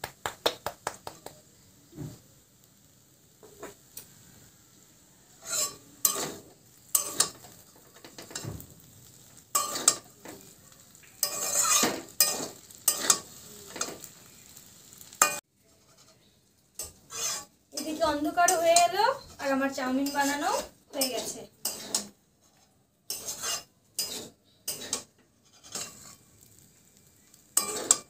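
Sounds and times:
faint sizzle: 0.0 - 28.0
tongs scraping and knocking pan: 5.4 - 14.2, 15.0 - 26.6, 27.2 - 28.0.

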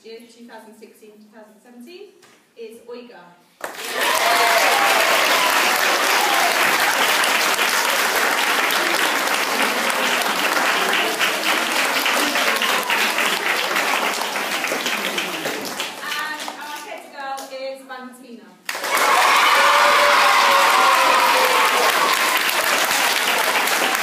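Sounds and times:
audience clapping: 3.6 - 16.9, 18.7 - 24.0.

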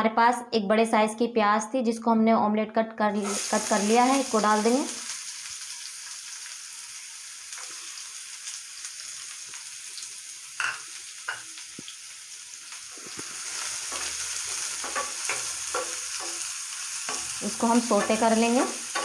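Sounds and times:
onion sizzling in hot oil: 3.2 - 19.0.

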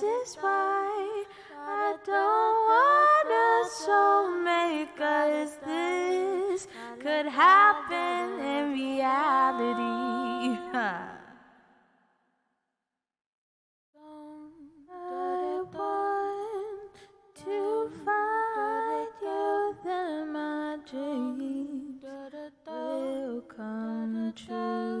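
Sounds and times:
woman singing with vibrato: 0.0 - 11.6.

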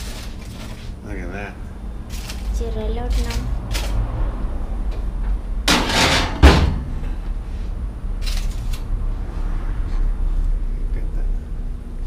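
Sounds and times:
oven door banging shut: 5.7 - 7.0
oven door scraping: 5.7 - 7.0.

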